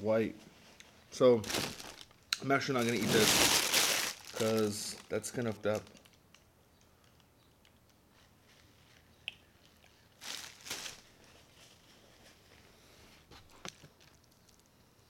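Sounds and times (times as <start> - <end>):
plastic bag rustling: 1.3 - 6.1, 10.2 - 11.8.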